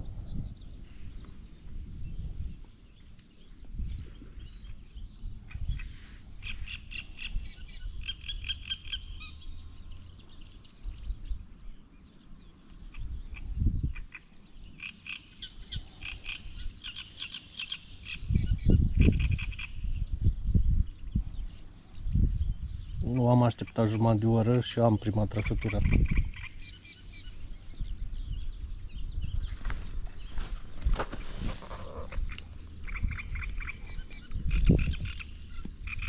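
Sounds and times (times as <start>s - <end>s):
frogs trilling: 29.5s - 36.0s.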